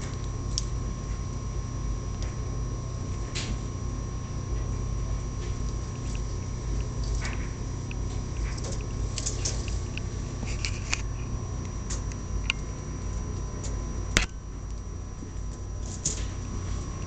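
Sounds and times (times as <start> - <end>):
low hum: 0.0 - 17.0
rat claws scrabbling on cage: 5.4 - 11.0, 15.8 - 16.4.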